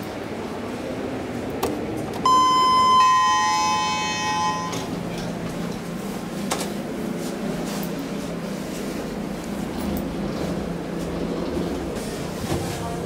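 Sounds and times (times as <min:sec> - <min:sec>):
elevator button click: 0:01.6 - 0:05.4
elevator two-tone chime: 0:02.2 - 0:05.4
low steady hum: 0:02.2 - 0:05.9.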